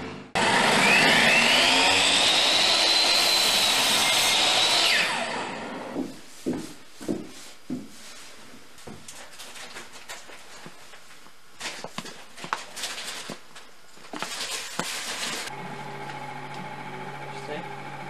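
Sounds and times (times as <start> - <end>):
electric miter saw whine: 0.3 - 6.0, 15.4 - 18.0.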